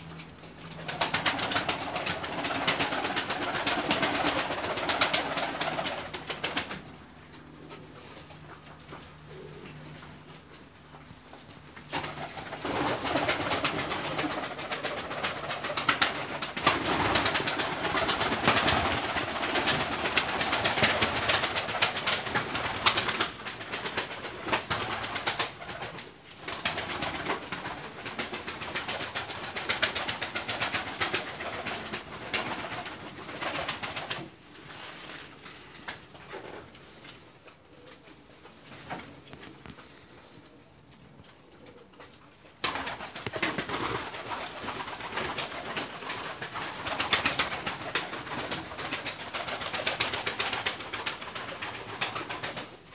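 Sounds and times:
pigeons cooing: 0:00.0 - 0:23.4, 0:35.4 - 0:52.9
pigeon wings flapping: 0:00.2 - 0:39.9, 0:41.6 - 0:52.9.

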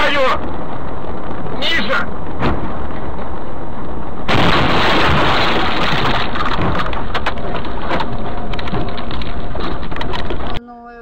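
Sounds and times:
knocks and scraping: 0:00.4 - 0:10.6
car crash crunching: 0:04.2 - 0:10.6.

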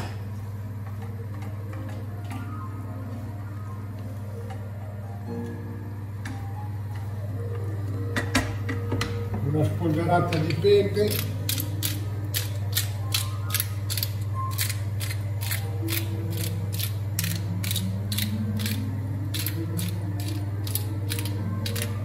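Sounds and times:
steady low hum: 0:00.0 - 0:22.0
pepper grinder clicking: 0:11.0 - 0:22.0.

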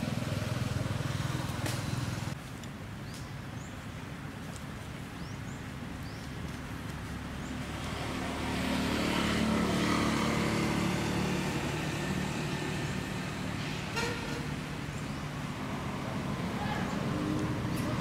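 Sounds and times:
vehicle engine hum passing: 0:06.5 - 0:18.0.

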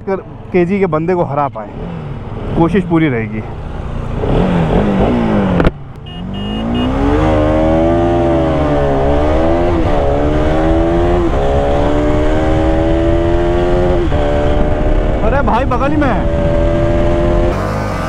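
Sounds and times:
motorcycle engine accelerating: 0:01.6 - 0:18.0
wind rushing over microphone: 0:07.6 - 0:17.6.

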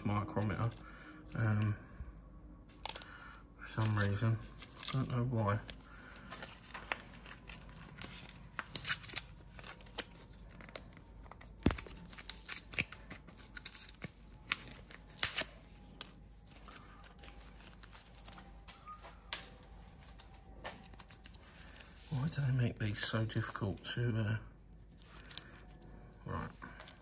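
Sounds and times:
packaging crinkling and tearing: 0:03.7 - 0:19.3, 0:19.9 - 0:22.4, 0:24.7 - 0:27.0.

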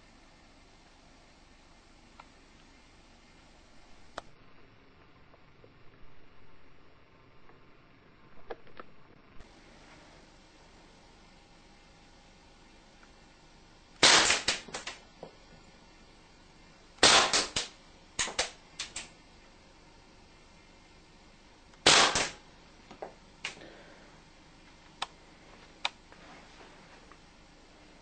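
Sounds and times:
airgun shots: 0:14.0 - 0:15.0, 0:17.0 - 0:19.1, 0:21.8 - 0:22.4.

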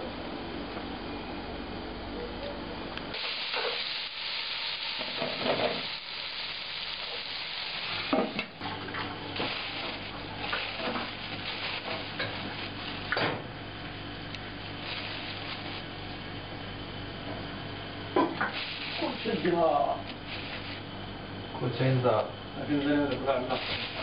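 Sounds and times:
vegetables sizzling in a pot: 0:03.1 - 0:08.6, 0:09.2 - 0:13.2, 0:14.5 - 0:16.1, 0:18.2 - 0:21.0, 0:23.2 - 0:24.0.

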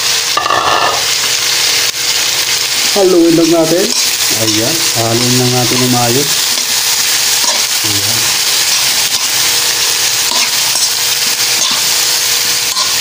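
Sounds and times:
vegetables sizzling in hot oil: 0:00.0 - 0:13.0
metal spatula scraping a pan: 0:00.4 - 0:01.1, 0:06.5 - 0:07.7, 0:08.6 - 0:13.0.

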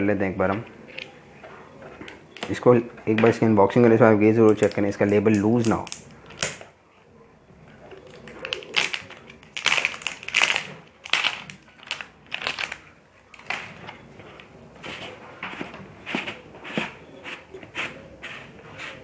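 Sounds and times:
plastic shrink-wrap crinkling and tearing: 0:04.4 - 0:06.6, 0:08.0 - 0:13.8.

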